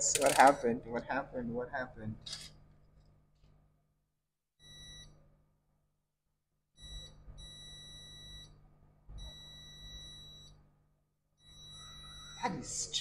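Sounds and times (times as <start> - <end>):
multimeter continuity beeps: 0.2 - 0.8, 6.8 - 8.6, 9.2 - 10.7, 11.4 - 12.7.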